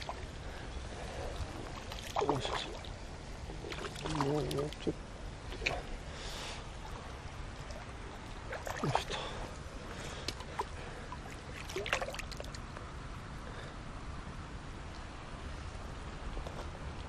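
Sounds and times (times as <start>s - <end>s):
fish splashing in water: 10.2s - 12.6s.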